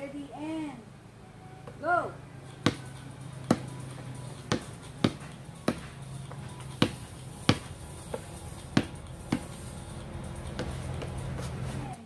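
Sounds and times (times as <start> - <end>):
basketball bouncing on concrete: 2.5 - 9.6, 10.4 - 11.6.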